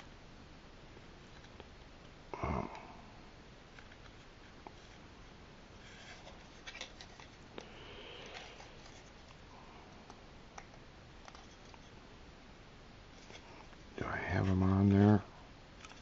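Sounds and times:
plastic parts rubbing: 5.8s - 7.4s, 8.2s - 9.4s.

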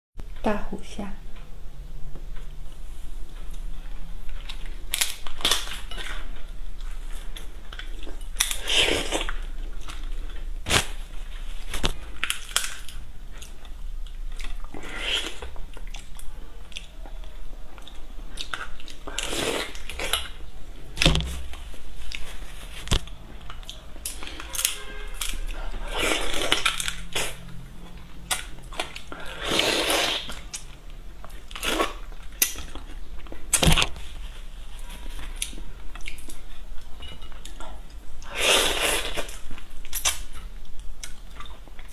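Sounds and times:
sucking and chewing: 3.5s - 20.5s, 22.0s - 33.9s.

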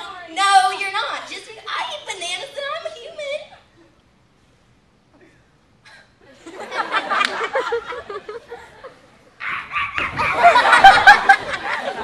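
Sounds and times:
audience laughter: 6.3s - 9.1s, 9.7s - 12.0s.

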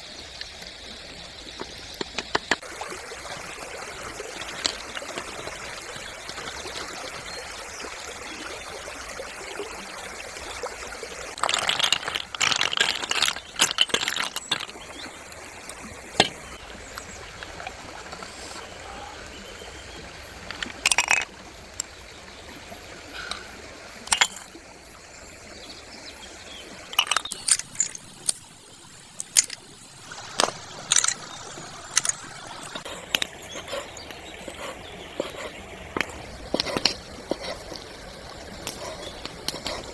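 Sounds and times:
snail shells clicking: 11.4s - 15.4s, 27.0s - 28.4s
watery hiss: 17.2s - 19.4s, 22.8s - 24.7s.

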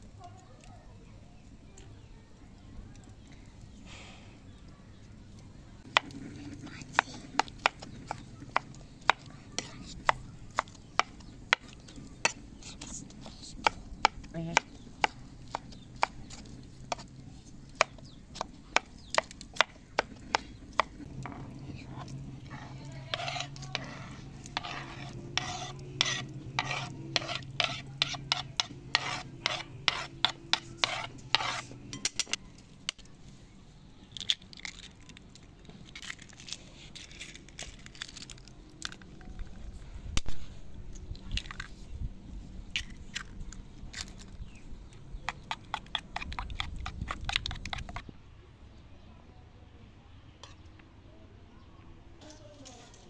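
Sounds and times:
spoon scraping plastic cutting board: 5.9s - 32.1s, 45.3s - 48.0s.

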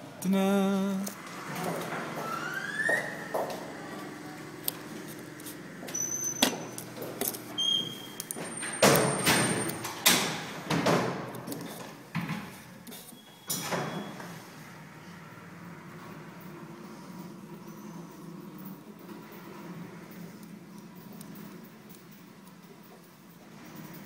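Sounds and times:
brief squeaks: 5.9s - 6.8s, 7.6s - 9.8s, 12.9s - 14.4s.

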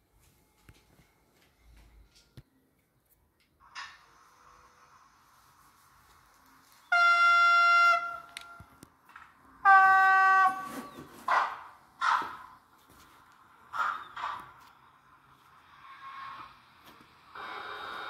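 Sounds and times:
model locomotive horn: 6.4s - 8.8s, 9.5s - 10.9s.

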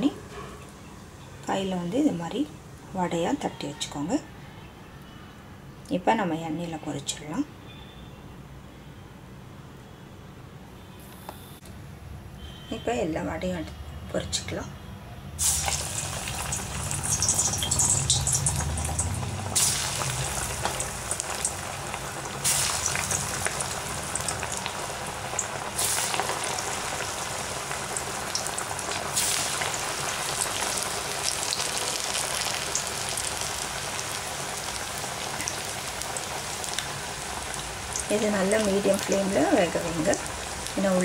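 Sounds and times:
food deep-frying in oil: 15.4s - 41.0s.

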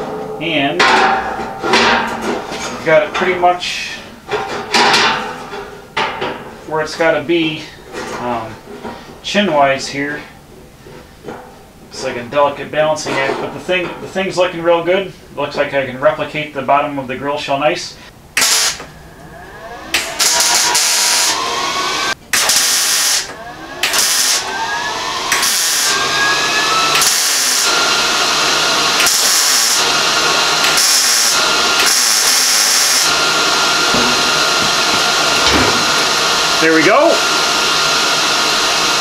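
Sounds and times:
power grinder grinding sheet metal: 18.4s - 39.0s.

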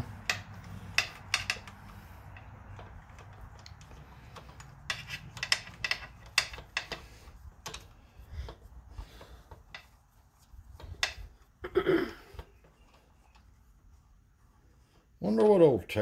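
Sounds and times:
light metallic clicks and taps: 0.1s - 11.5s.

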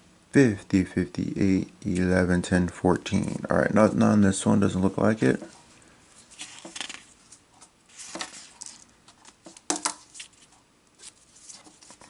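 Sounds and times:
paper rustling: 6.2s - 12.0s.

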